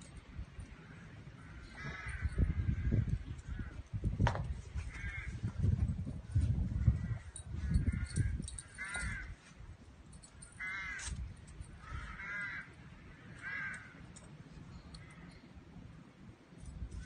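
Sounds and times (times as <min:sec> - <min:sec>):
crows cawing: 0:00.7 - 0:03.8, 0:04.8 - 0:05.4, 0:06.8 - 0:09.4, 0:10.4 - 0:11.2, 0:11.8 - 0:14.1.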